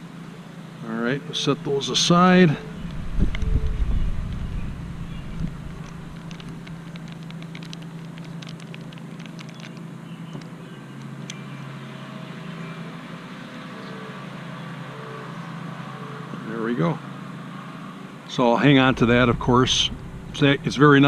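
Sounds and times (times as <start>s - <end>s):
steady low hum: 0.0s - 10.1s, 15.4s - 21.0s.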